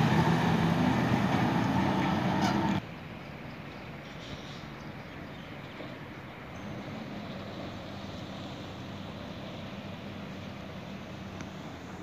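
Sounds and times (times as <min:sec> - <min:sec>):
truck engine drone: 0:00.0 - 0:02.8, 0:06.4 - 0:12.0.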